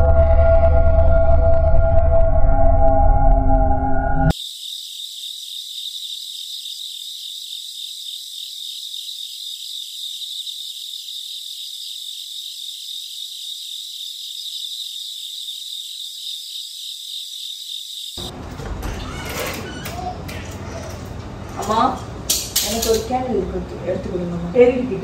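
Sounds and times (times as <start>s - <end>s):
crickets chirping: 4.3s - 18.3s.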